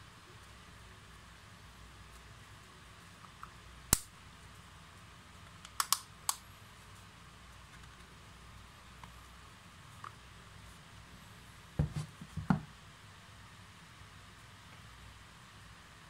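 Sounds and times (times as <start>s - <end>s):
plastic housing clicks: 5.6s - 6.4s.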